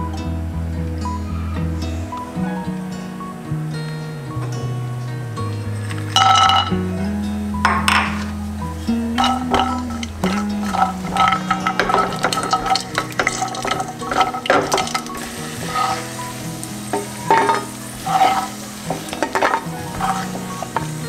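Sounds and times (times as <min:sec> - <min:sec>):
nuts sizzling in oil: 0:07.5 - 0:21.0
spatula scraping pan: 0:09.2 - 0:21.0.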